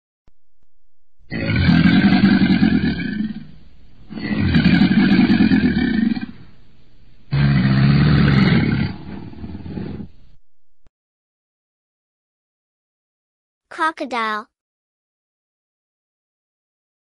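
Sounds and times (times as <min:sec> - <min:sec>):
crocodile bellowing: 0:01.3 - 0:06.5, 0:07.3 - 0:10.1.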